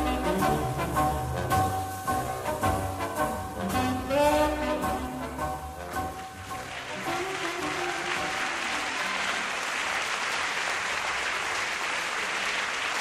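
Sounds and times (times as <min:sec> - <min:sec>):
foxtrot music: 0:00.0 - 0:08.9
audience applauding: 0:06.1 - 0:13.0.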